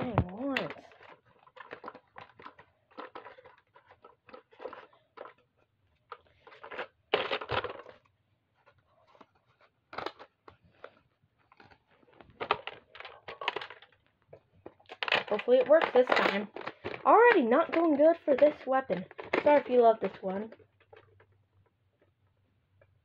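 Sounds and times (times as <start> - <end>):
plastic toy blaster clicks and rattles: 0.1 - 5.4, 6.1 - 8.0, 12.4 - 14.0, 14.8 - 21.2.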